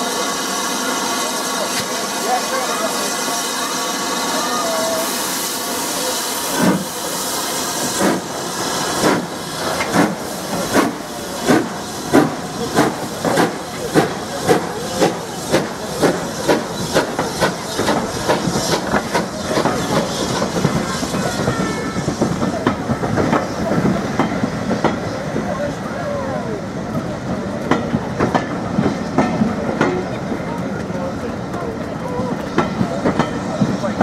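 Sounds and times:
steam hissing: 0:00.0 - 0:34.0
steam locomotive exhaust beats: 0:00.0 - 0:34.0.

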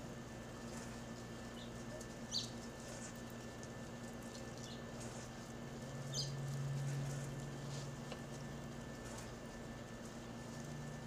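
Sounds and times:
steady low hum: 0:00.0 - 0:11.0
lovebirds chirping: 0:01.5 - 0:02.6, 0:06.0 - 0:06.4.

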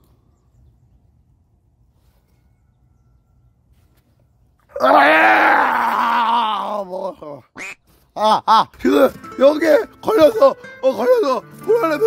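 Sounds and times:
man gagging groan: 0:04.8 - 0:07.5.

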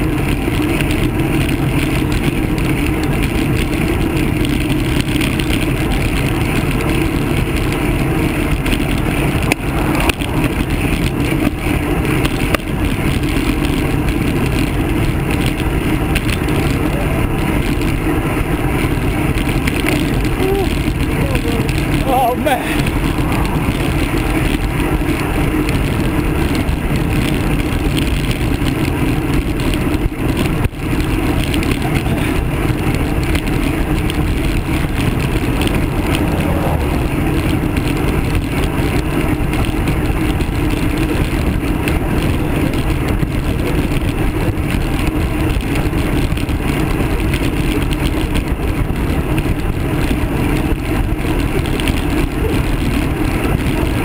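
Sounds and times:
road noise: 0:00.0 - 0:54.0
wind buffeting camera: 0:00.0 - 0:54.0.

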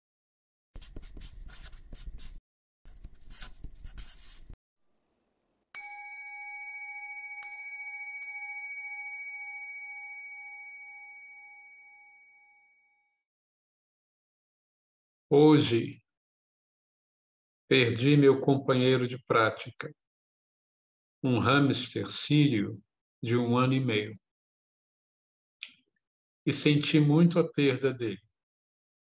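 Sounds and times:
scratchy brushing: 0:00.8 - 0:04.6
singing bowl ringing: 0:05.8 - 0:13.2.

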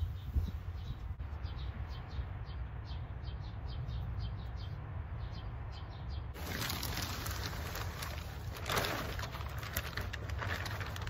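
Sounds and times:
bird chirping: 0:00.0 - 0:08.1.

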